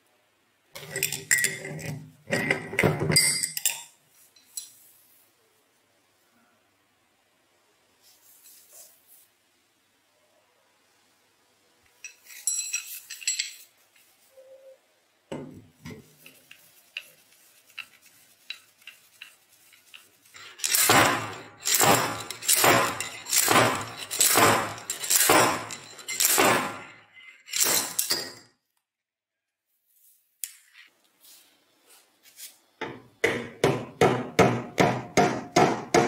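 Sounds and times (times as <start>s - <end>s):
metal tool parts clinking: 0.8s - 4.8s, 12.0s - 13.8s, 20.3s - 28.5s
metal scraping strokes: 16.0s - 28.3s.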